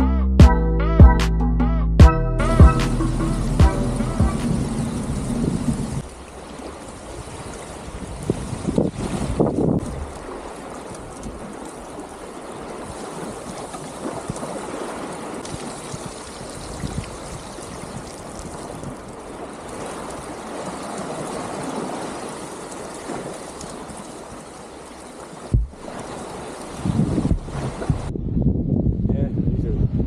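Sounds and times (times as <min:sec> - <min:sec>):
small waves washing onto sand: 0:04.5 - 0:28.1.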